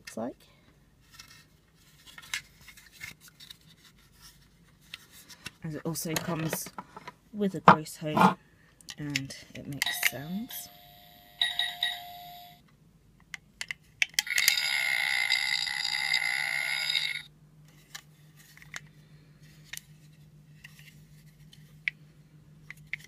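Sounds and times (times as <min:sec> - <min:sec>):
buzzy electronic toy noise: 0:14.3 - 0:17.3.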